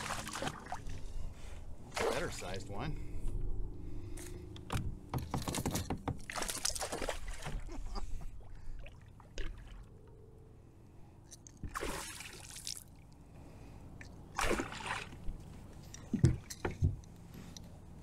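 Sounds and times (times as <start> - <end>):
water splashing beside kayak: 0.0 - 1.1.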